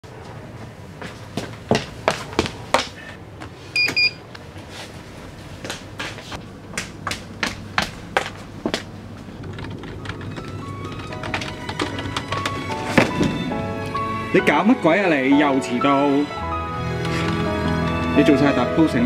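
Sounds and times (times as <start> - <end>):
footsteps of hard shoes on floor: 0.2 - 3.6, 7.0 - 9.3, 11.2 - 14.0.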